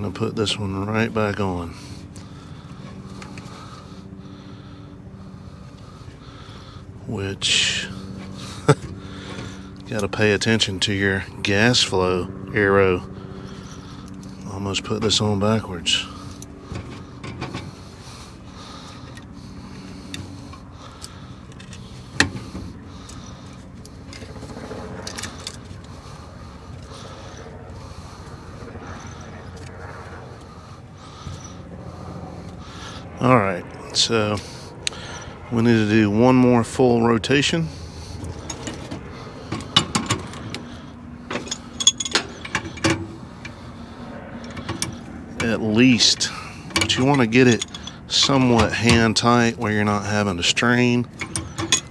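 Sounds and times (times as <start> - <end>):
steady low hum: 0.0 - 51.9
metal-on-metal clinks and knocks: 41.3 - 43.1, 46.7 - 49.1, 51.2 - 51.9.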